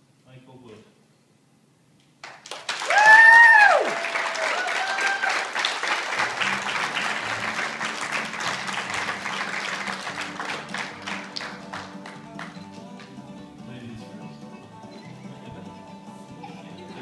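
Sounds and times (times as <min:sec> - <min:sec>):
people clapping: 0:02.2 - 0:13.3
people whooping: 0:02.8 - 0:07.0
faint guitar music: 0:06.2 - 0:17.0.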